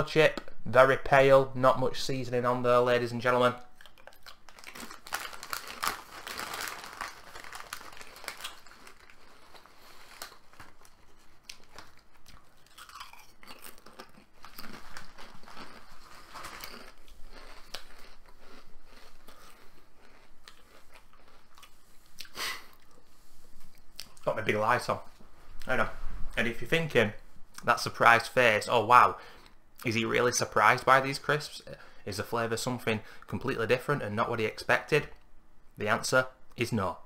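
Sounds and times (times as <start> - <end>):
person chewing crisps: 3.7 - 24.3.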